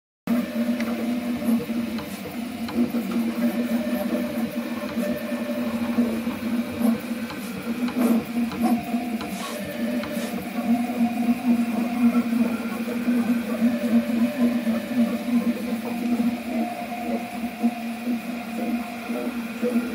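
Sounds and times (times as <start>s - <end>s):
printer mechanical noise: 0.3s - 19.9s
whistle steady low tone: 8.6s - 19.3s.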